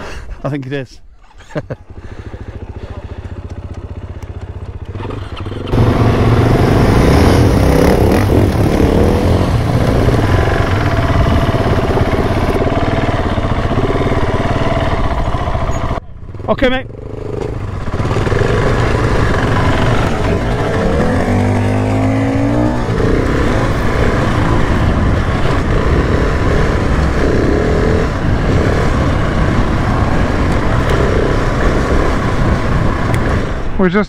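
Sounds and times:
motorcycle engine: 0:01.5 - 0:34.0
wind rush on microphone: 0:05.8 - 0:13.8, 0:17.8 - 0:33.8.

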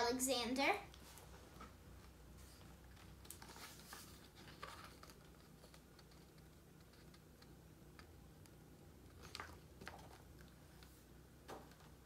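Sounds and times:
faint paper rustles: 0:01.0 - 0:07.5.

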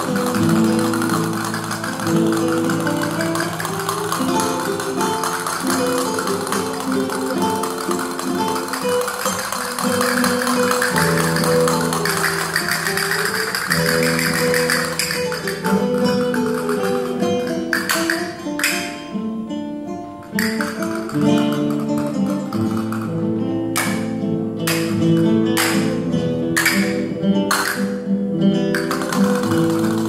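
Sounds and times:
castanets clicking: 0:00.0 - 0:18.9, 0:20.4 - 0:23.2, 0:28.8 - 0:30.0
flamenco acoustic guitar: 0:00.0 - 0:30.0.

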